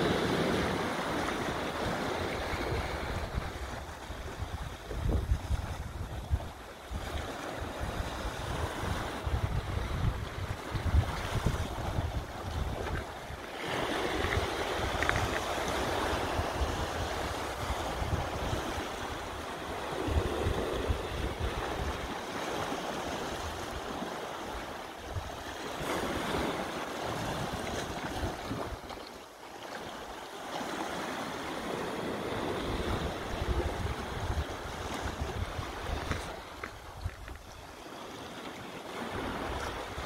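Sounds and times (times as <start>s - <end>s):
wind buffeting microphone: 0.0s - 24.1s, 31.6s - 37.7s, 38.9s - 40.0s
sea washing against rocks: 0.0s - 40.0s.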